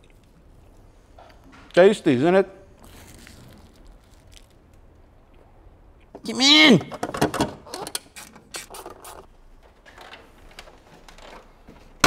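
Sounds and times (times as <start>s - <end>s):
plastic covers clicking and rattling: 6.9s - 8.0s, 9.6s - 12.0s.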